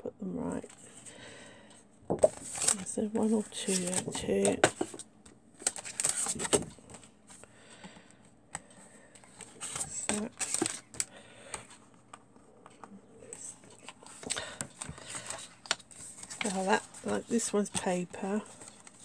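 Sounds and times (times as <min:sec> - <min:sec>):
card and paper rustling: 0:02.2 - 0:19.0.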